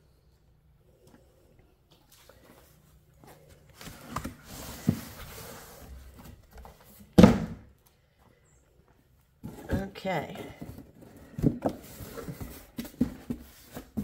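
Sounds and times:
cardboard rustling and scraping: 2.2s - 7.2s, 9.4s - 14.0s.

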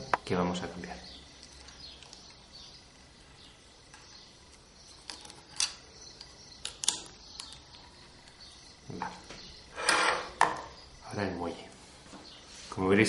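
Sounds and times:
plastic parts clicking: 5.0s - 8.4s.

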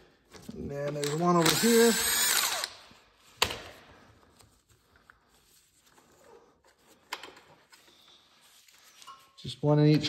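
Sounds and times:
faint tool handling sounds: 3.0s - 10.0s.

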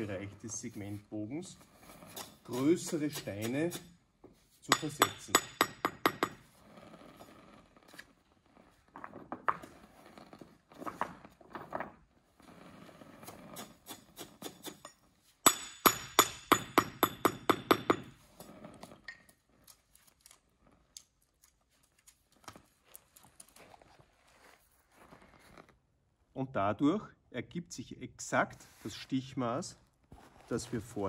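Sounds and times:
hammer tapping stone: 4.7s - 6.4s, 14.5s - 18.1s.

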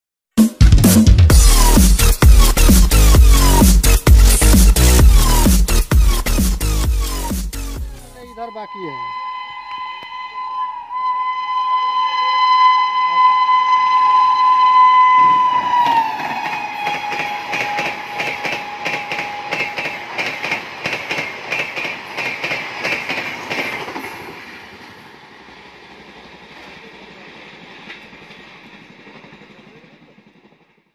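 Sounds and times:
train horn: 8.2s - 20.4s
train wheels clacking over rail joints: 15.2s - 25.0s, 25.9s - 30.8s.

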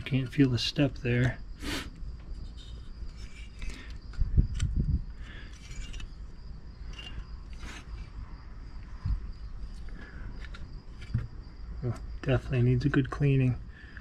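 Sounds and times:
metal part clicks and scrapes: 2.3s - 8.2s.

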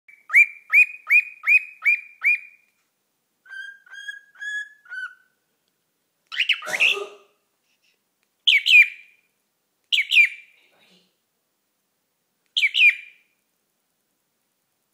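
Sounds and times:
cockatiel whistling: 0.1s - 2.6s, 3.4s - 5.3s, 6.3s - 7.0s, 12.6s - 13.2s
rough bird call: 6.3s - 7.3s.

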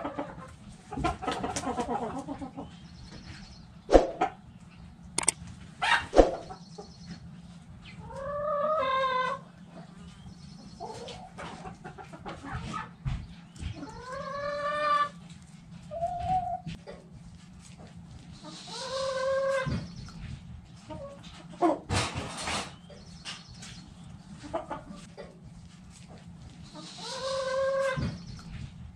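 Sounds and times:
chickens calling: 0.0s - 28.9s
sharp click: 5.2s - 5.4s.

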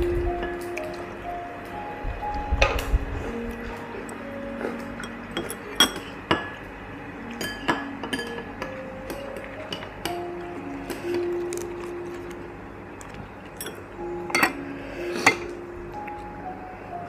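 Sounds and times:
soft background music: 0.0s - 17.0s
utensils clinking against dishes: 4.0s - 12.1s, 13.5s - 15.6s.

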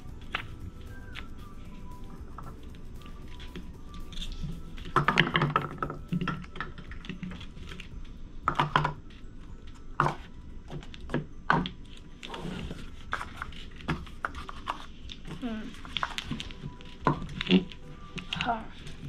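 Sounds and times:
cups knocking and tapping: 8.5s - 9.0s.

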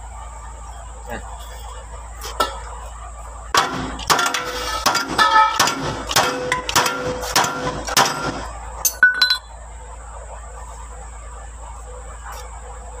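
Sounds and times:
hand tool clinking on metal: 8.8s - 9.5s.

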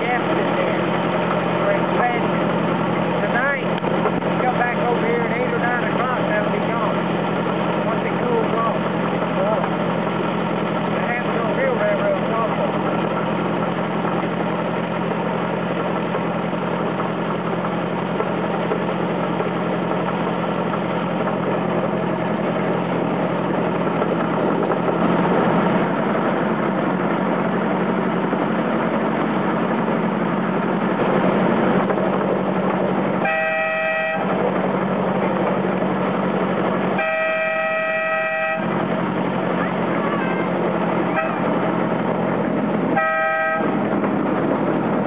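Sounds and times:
small locomotive engine running: 0.0s - 45.0s
train horn toots: 33.2s - 34.4s, 36.9s - 38.8s, 41.1s - 41.6s, 42.9s - 43.8s.

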